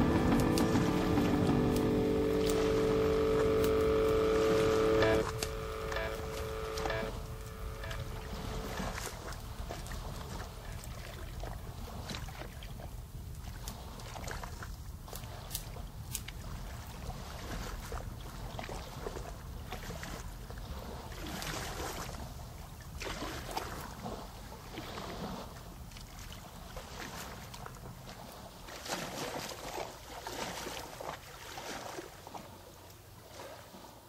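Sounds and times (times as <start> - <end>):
low rumble: 0.0 - 8.7
water lapping against boat: 0.0 - 34.0.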